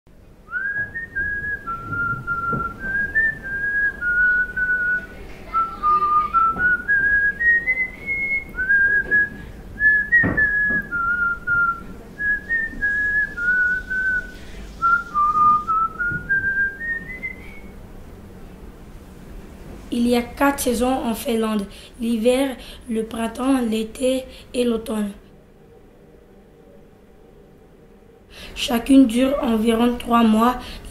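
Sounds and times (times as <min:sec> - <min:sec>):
person whistling a tune: 0:00.5 - 0:17.8.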